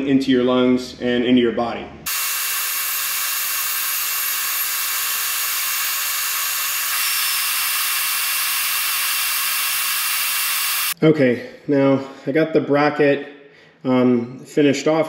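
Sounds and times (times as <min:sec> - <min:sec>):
rotary tool grinding metal: 0:02.1 - 0:11.0.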